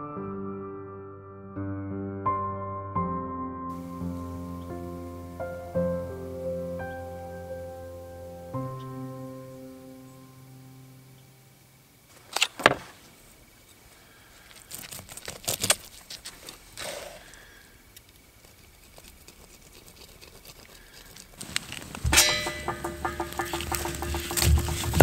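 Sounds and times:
blade scraping: 0:18.4 - 0:25.0.

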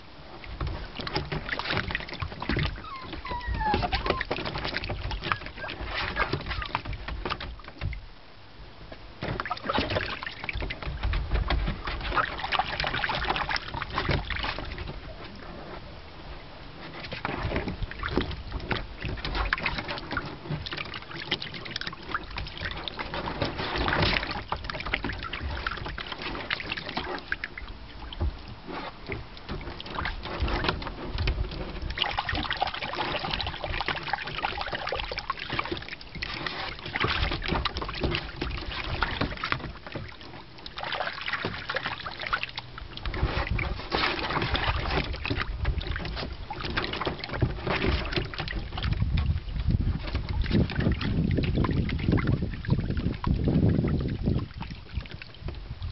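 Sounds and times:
water splashing in pool: 0:00.0 - 0:55.9.

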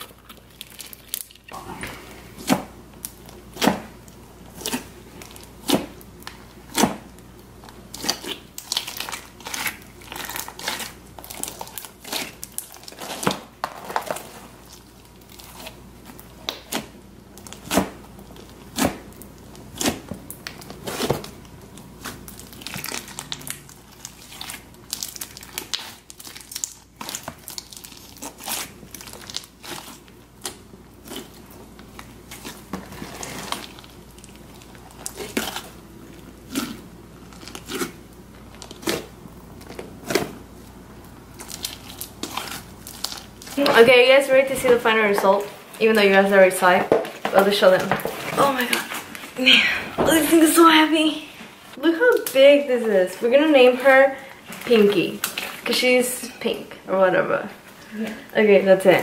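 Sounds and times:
slime squelching and popping: 0:00.0 - 0:40.5, 0:41.3 - 0:43.9.

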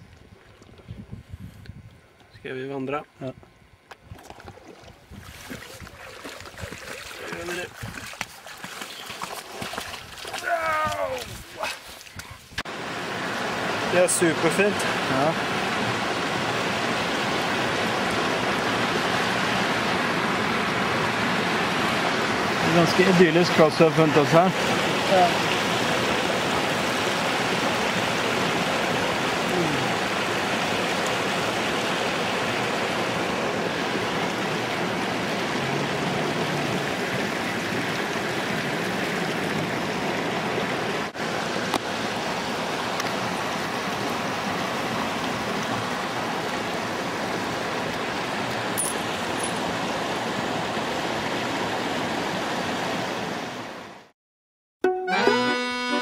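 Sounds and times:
stream water rushing over rocks: 0:04.6 - 0:54.0
accordion music: 0:54.8 - 0:56.0.

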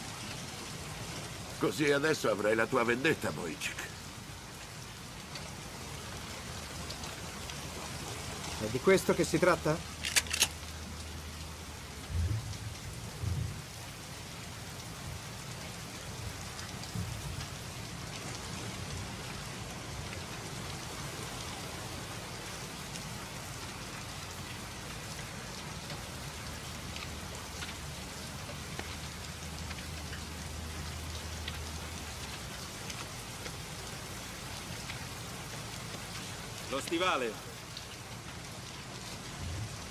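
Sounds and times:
heavy rain falling: 0:00.0 - 0:39.9
low thuds: 0:12.1 - 0:13.6.

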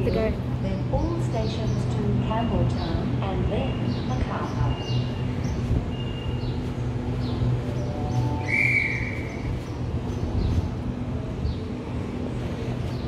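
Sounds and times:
electric train humming: 0:00.0 - 0:13.0.

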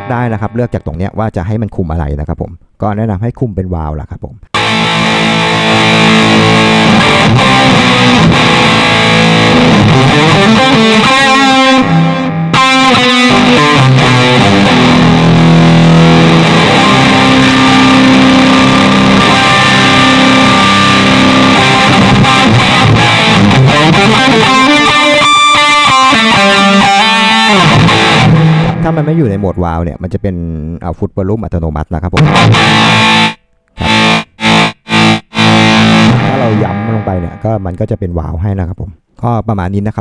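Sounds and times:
distorted electric guitar lead: 0:00.0 - 0:01.0, 0:04.5 - 0:30.0, 0:32.2 - 0:38.0.

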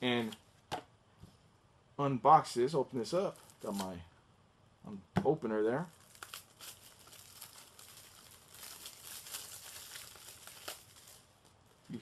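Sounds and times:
plastic wrap crinkling: 0:03.2 - 0:04.0, 0:05.8 - 0:12.0.

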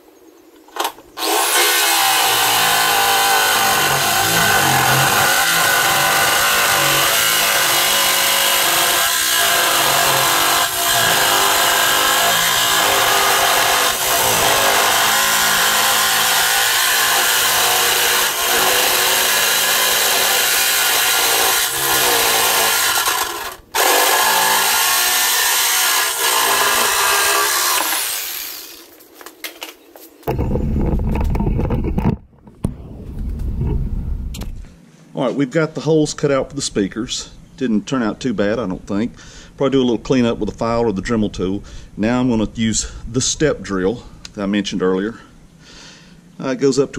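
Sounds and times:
jigsaw cutting steel: 0:00.8 - 0:28.9.

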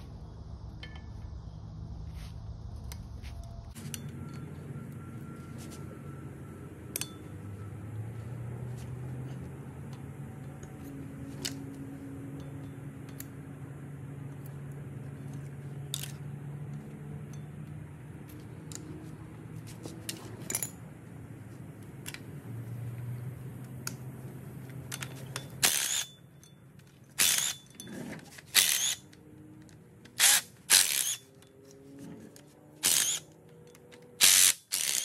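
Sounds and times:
steady low hum: 0:00.0 - 0:32.2
impact driver bursts: 0:25.6 - 0:26.1, 0:27.2 - 0:27.6, 0:28.6 - 0:29.1, 0:30.2 - 0:31.3, 0:32.8 - 0:33.3, 0:34.2 - 0:35.0.

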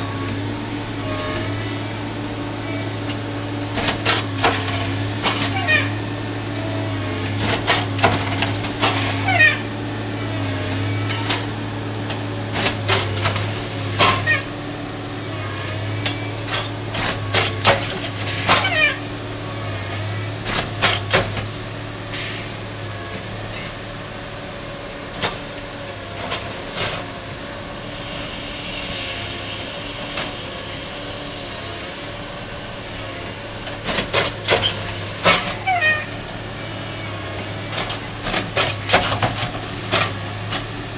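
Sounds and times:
diesel engines running: 0:00.0 - 0:40.9
air hiss: 0:27.8 - 0:31.3.

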